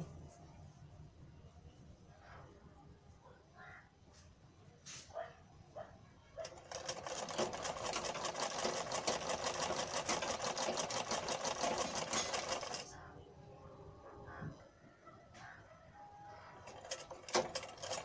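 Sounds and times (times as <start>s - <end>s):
sewing machine stitching: 6.4s - 12.9s, 16.6s - 18.0s.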